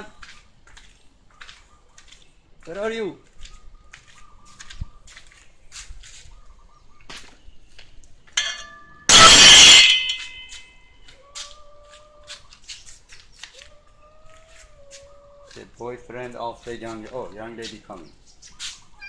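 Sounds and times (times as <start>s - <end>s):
small birds chirping: 0.0s - 8.4s, 10.9s - 19.0s
loud clatter with ringing clinks: 8.4s - 10.8s.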